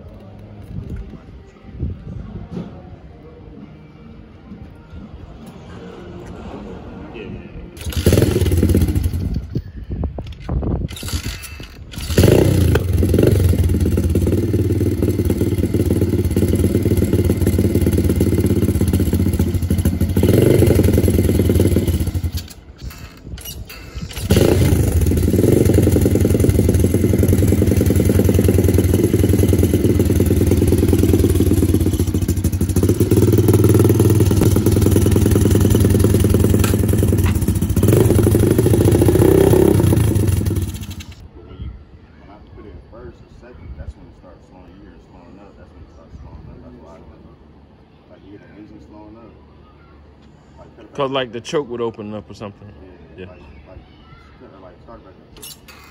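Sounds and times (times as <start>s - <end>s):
motorcycle engine starting and running: 7.8s - 9.7s, 10.9s - 41.2s.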